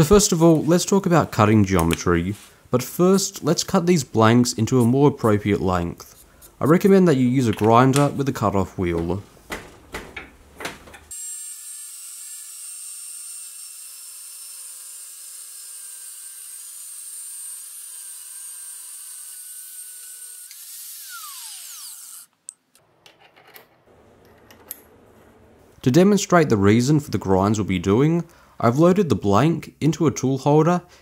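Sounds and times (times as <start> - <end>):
grinder cutting steel: 11.1 - 22.3
grinder wheel spinning down: 18.8 - 22.3.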